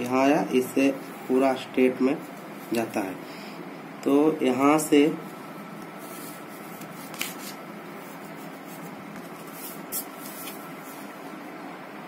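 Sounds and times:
steady background hiss: 0:00.0 - 0:12.0
plastic sliding on paper: 0:05.9 - 0:11.1.

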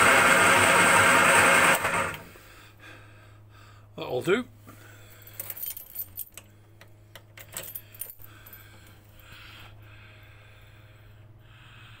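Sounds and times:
keys jangling: 0:05.2 - 0:06.5, 0:07.3 - 0:09.0.

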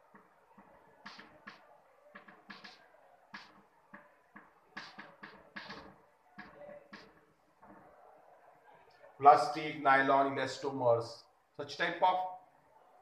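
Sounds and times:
chalk tapping and scratching: 0:00.1 - 0:07.8.

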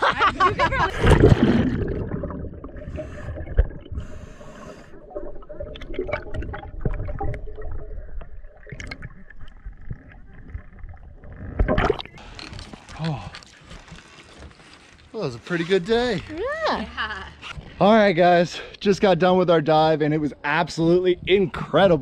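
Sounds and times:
water sloshing and gurgling: 0:00.4 - 0:15.1.

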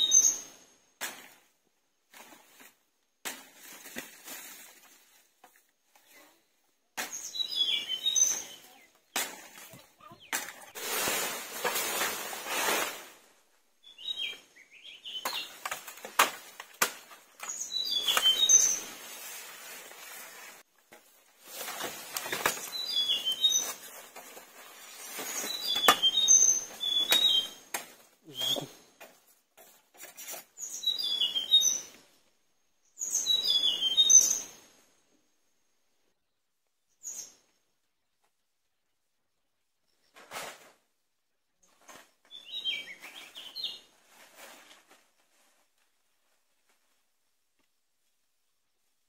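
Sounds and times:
small birds chirping: 0:05.9 - 0:10.8, 0:13.8 - 0:15.9, 0:17.3 - 0:19.3, 0:22.2 - 0:24.0, 0:24.6 - 0:29.0, 0:30.5 - 0:32.2, 0:32.8 - 0:34.6, 0:41.6 - 0:43.9
rustling and scraping with clicks: 0:15.3 - 0:28.1, 0:29.0 - 0:30.8, 0:40.0 - 0:40.9, 0:41.6 - 0:42.4, 0:44.0 - 0:47.8.

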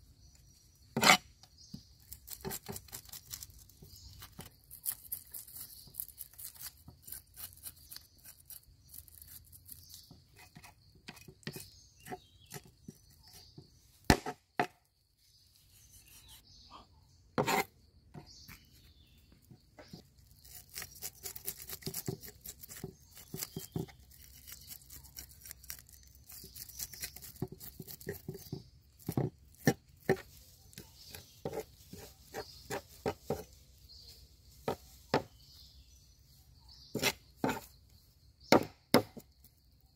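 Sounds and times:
cleaver scraping fish scales: 0:01.0 - 0:01.3, 0:02.0 - 0:13.5, 0:17.4 - 0:17.7, 0:19.8 - 0:33.5, 0:36.9 - 0:37.8.

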